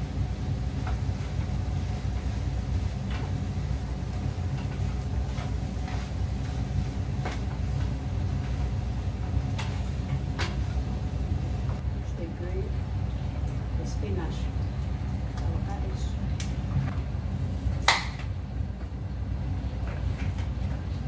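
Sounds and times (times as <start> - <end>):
steady low rumble: 0.0 - 21.0
spatula stirring food in pan: 0.4 - 10.8.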